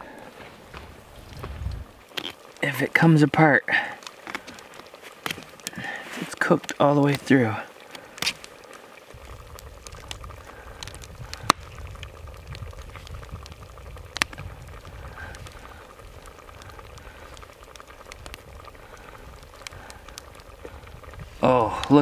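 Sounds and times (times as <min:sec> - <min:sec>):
low steady rumble: 0:09.1 - 0:22.0
sharp cracks: 0:14.1 - 0:14.5.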